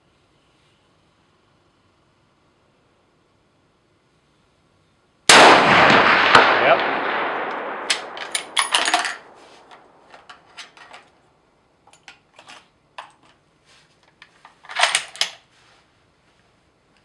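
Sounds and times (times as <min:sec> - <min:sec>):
rifle bolt clicks and clatters: 0:07.5 - 0:11.2, 0:11.9 - 0:13.4, 0:14.0 - 0:15.4.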